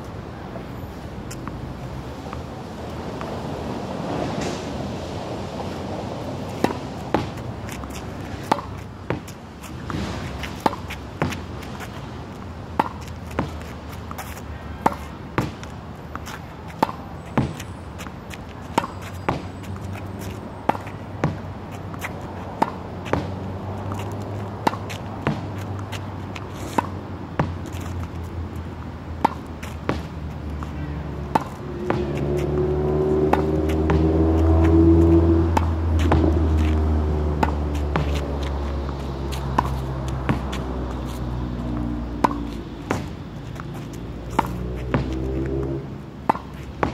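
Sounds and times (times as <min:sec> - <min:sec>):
racket hitting tennis ball: 0:05.6 - 0:46.9
tennis ball hitting wall: 0:06.6 - 0:11.5, 0:31.2 - 0:40.9, 0:42.2 - 0:43.2, 0:44.3 - 0:46.9.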